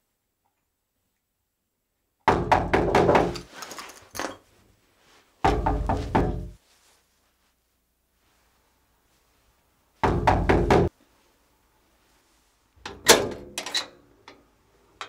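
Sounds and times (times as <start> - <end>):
heavy rapid knocking on door: 2.3 - 3.4, 5.5 - 6.6, 10.0 - 10.9.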